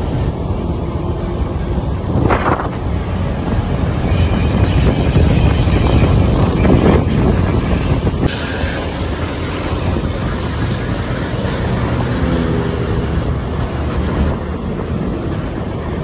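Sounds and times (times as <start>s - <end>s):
bus engine rumbling: 0.0s - 16.0s
wind buffeting microphone: 0.0s - 16.0s.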